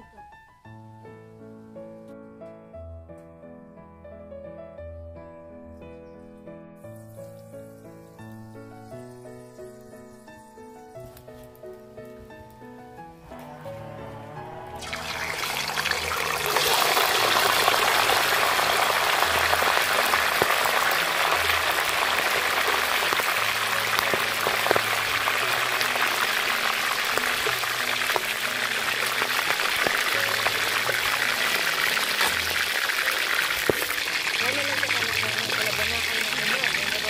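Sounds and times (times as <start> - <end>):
oil sizzling: 6.8 - 12.6, 14.7 - 37.0.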